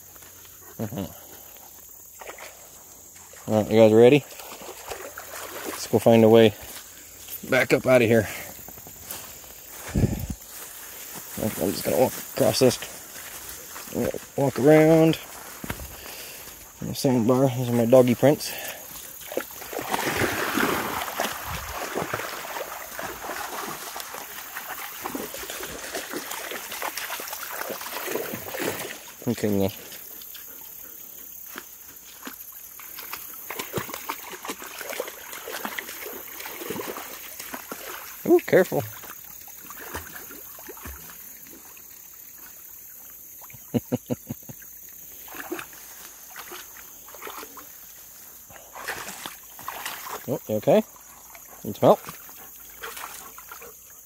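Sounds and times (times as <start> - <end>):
dog splashing through water: 4.2 - 6.8, 17.8 - 30.8, 32.0 - 41.7, 45.2 - 53.8.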